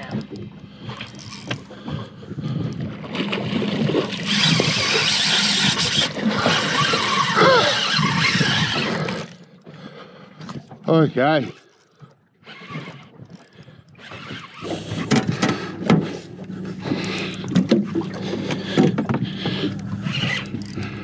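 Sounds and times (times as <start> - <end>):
fishing reel drag buzzing: 0.9 - 1.7, 4.0 - 9.5, 11.4 - 15.1, 19.7 - 21.0.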